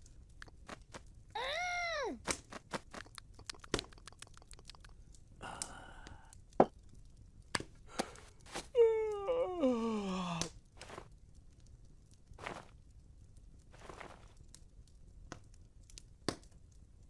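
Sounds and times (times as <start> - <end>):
log fire crackling: 0.0 - 17.0
cartoon cat vocal sound: 1.4 - 2.2
breathy sound: 5.4 - 6.4, 7.9 - 10.5.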